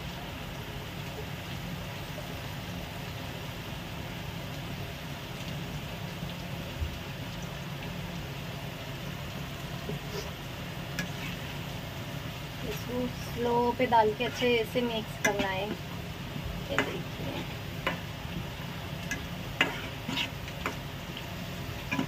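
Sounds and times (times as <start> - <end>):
low steady hum: 0.0 - 22.0
sauce sizzling in a pan: 0.0 - 22.0.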